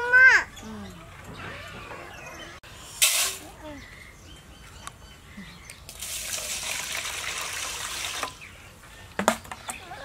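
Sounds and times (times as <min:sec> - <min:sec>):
water pouring into bowl: 0:05.9 - 0:08.3.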